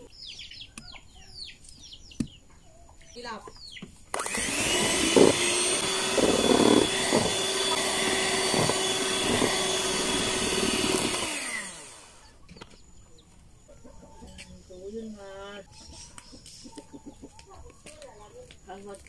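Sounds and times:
electric hand mixer running: 0:04.1 - 0:12.4.

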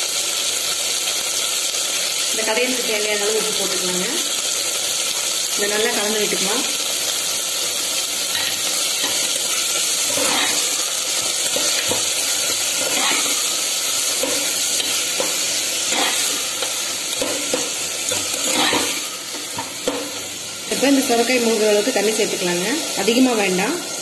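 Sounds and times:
vegetables sizzling in oil: 0:00.0 - 0:24.0
ladle scraping pot: 0:10.0 - 0:10.8, 0:11.5 - 0:13.6, 0:14.2 - 0:20.1.

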